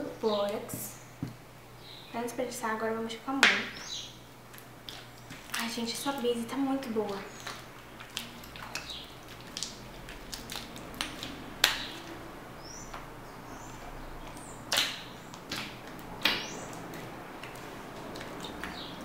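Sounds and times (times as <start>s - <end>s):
slime being stretched and kneaded: 7.4s - 12.2s.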